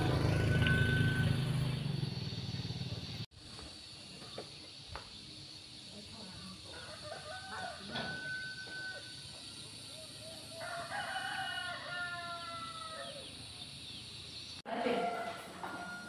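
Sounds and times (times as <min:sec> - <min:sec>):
rooster crowing: 0:06.7 - 0:13.5, 0:14.9 - 0:16.0.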